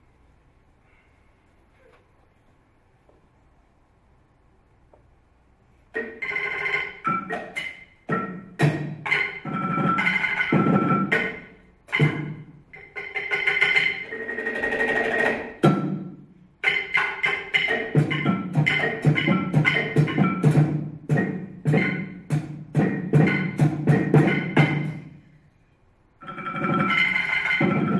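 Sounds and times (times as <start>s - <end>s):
mallets on tabletop percussion: 6.0s - 25.2s, 26.2s - 27.9s.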